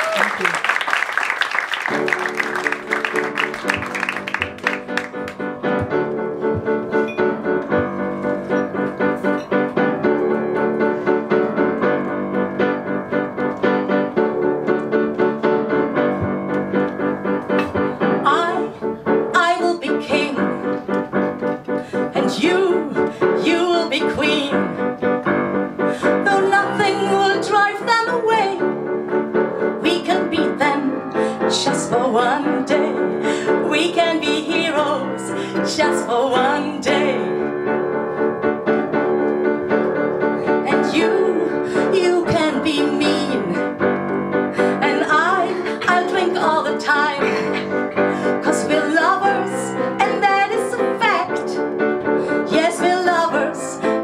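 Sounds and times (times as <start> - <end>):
applause: 0.0 - 5.5
piano playing chords: 1.1 - 54.0.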